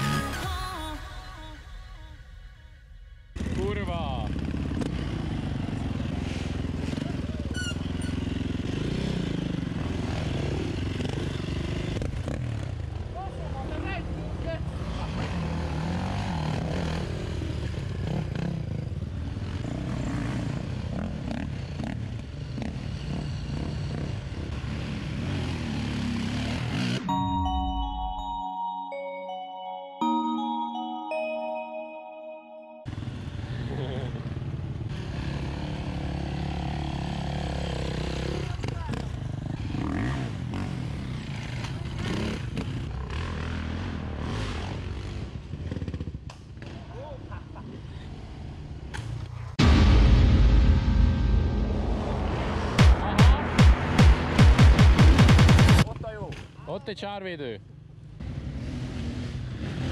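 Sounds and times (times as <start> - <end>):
dirt bike engines revving: 3.4 - 27.0, 58.2 - 59.9.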